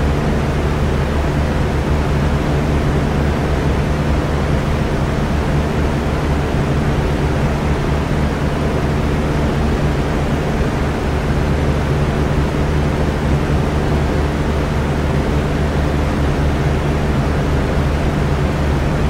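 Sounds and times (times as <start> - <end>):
electric fan air rush: 0.0 - 19.0
low motor hum: 0.0 - 19.0.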